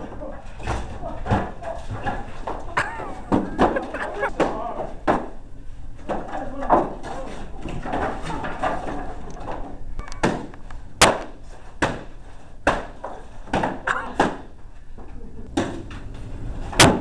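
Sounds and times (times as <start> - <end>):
person speaking: 2.7 - 5.0
swords and shields whacking: 10.2 - 14.5.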